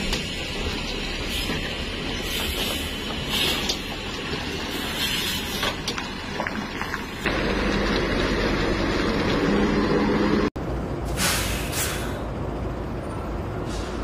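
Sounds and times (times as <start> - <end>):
bus diesel engine droning: 0.0 - 14.0
road noise: 0.0 - 14.0
short air hisses: 4.8 - 5.6, 11.1 - 12.3.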